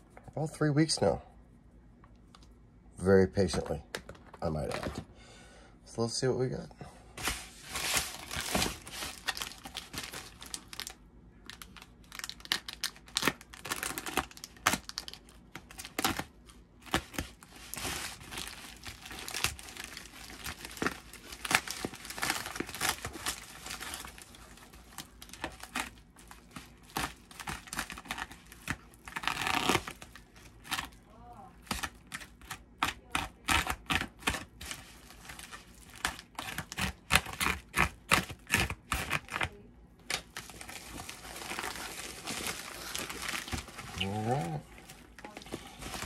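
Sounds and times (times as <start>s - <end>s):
plastic mailer crinkling: 7.2s - 31.0s, 40.2s - 46.0s
plastic tearing: 7.2s - 46.0s.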